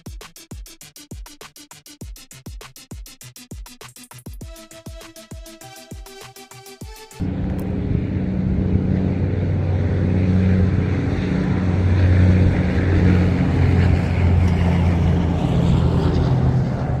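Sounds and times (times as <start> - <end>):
engine running steadily: 7.2 - 17.0.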